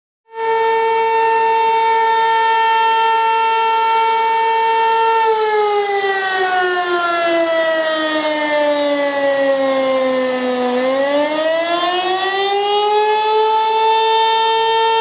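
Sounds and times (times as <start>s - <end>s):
warning siren wailing: 0.3s - 15.0s.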